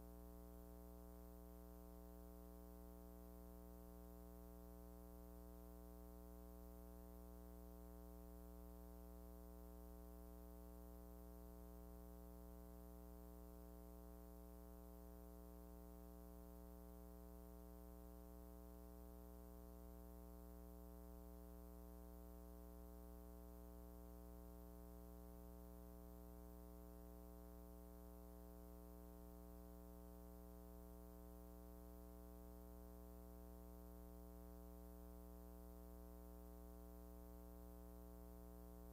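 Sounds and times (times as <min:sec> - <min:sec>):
faint steady hum: 0:00.0 - 0:38.9.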